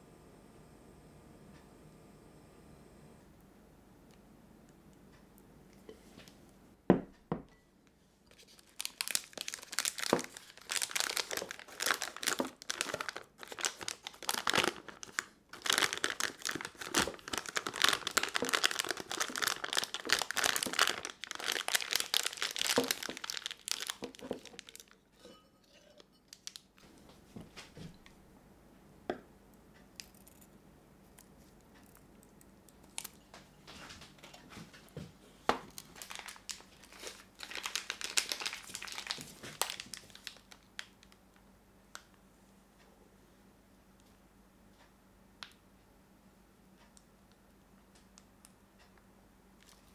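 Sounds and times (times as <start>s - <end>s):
plastic piping bag crinkling: 8.3s - 25.3s, 26.3s - 26.8s, 35.5s - 41.2s.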